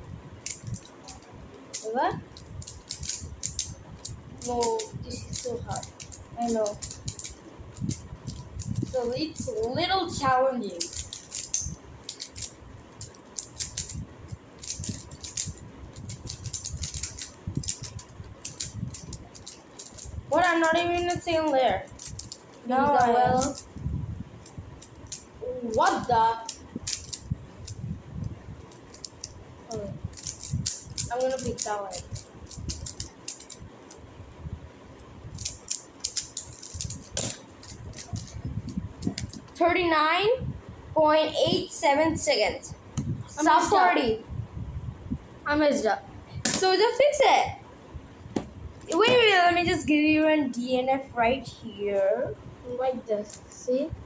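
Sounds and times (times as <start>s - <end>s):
puzzle cube layers clicking: 0.4s - 9.9s, 10.7s - 23.7s, 24.5s - 27.8s, 28.7s - 29.3s, 30.1s - 34.0s, 35.4s - 39.6s.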